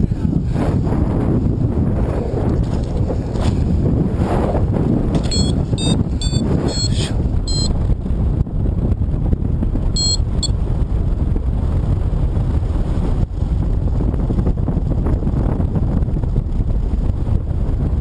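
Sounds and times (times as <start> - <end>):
wind buffeting microphone: 0.0 - 18.0
short electronic beeps: 5.2 - 7.7, 10.0 - 10.5.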